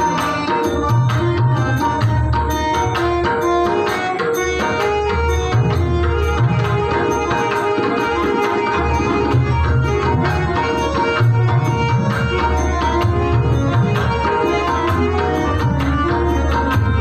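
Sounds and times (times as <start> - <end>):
hand drums fast rhythm: 0.0 - 17.0
harmonium holding notes: 0.0 - 17.0.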